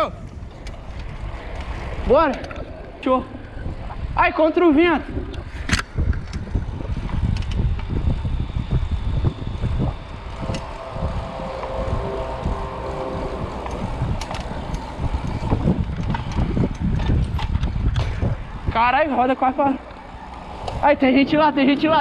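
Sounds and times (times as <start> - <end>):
wind buffeting microphone: 0.0 - 22.0
faint humming tone: 6.7 - 17.9.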